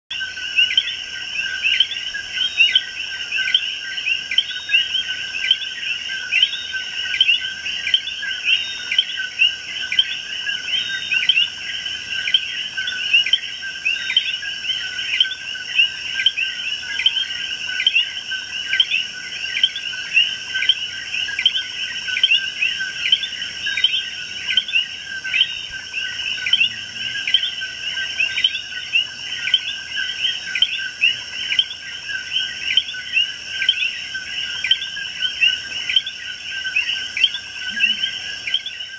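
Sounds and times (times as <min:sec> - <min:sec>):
high insect trilling: 0:10.0 - 0:38.9.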